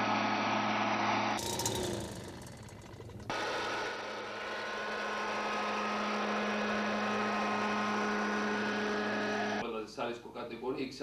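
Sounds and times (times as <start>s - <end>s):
engine hum: 0.0s - 9.6s.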